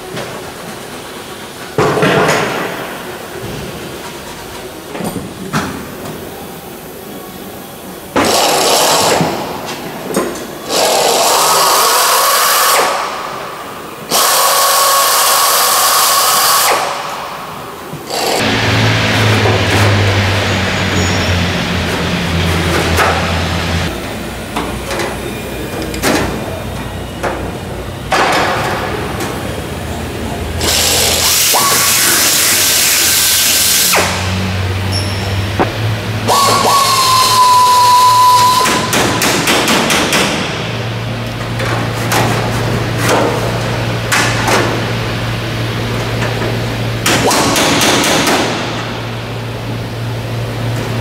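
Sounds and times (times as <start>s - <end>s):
air tool whining on metal: 10.6s - 24.0s, 30.6s - 34.3s, 35.0s - 39.8s.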